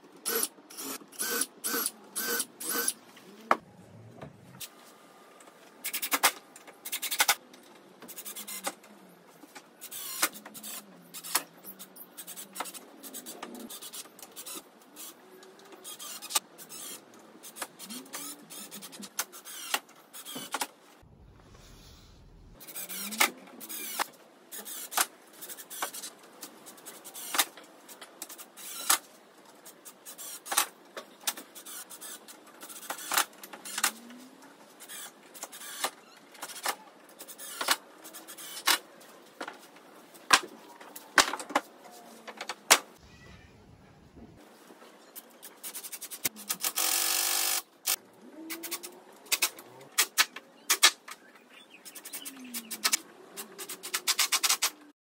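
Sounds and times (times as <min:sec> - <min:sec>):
cordless drill driving screws: 0:09.9 - 0:11.3, 0:46.6 - 0:47.7.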